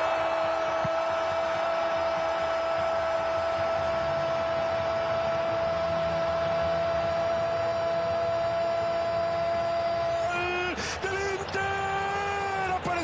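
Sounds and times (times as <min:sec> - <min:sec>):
stadium crowd hum: 0:00.0 - 0:13.0
commentator shouting: 0:08.8 - 0:13.0.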